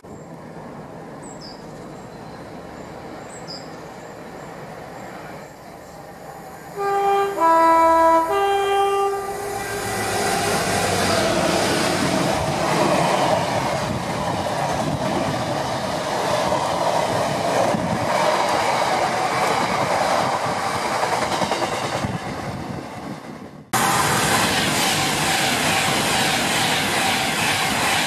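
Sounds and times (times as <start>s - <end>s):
train wheels rumbling on track: 0.0s - 28.0s
two-tone locomotive horn: 6.8s - 10.1s.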